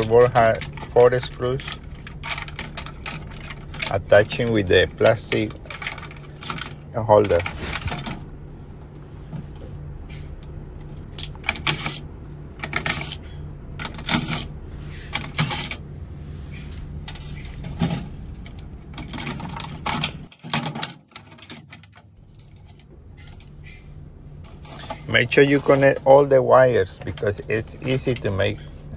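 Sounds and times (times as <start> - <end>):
metallic clicks and rattles of tools: 0.0 - 8.2
steady low hum: 0.0 - 28.9.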